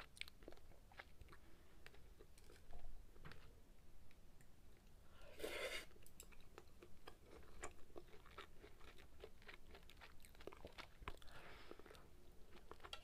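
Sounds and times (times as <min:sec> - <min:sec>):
close-miked chewing: 0:00.0 - 0:02.8, 0:06.0 - 0:13.0.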